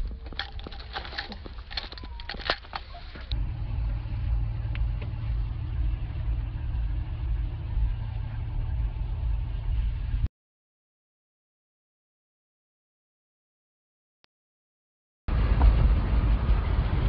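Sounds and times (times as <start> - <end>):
vehicle engine and road noise: 0.0 - 10.3, 15.3 - 17.0.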